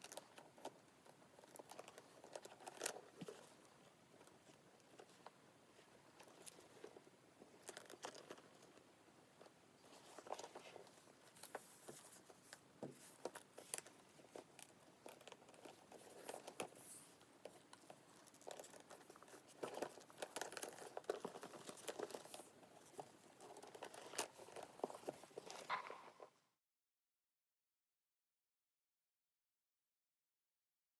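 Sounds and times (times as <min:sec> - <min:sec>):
leather rustling and rubbing: 0:09.8 - 0:25.8.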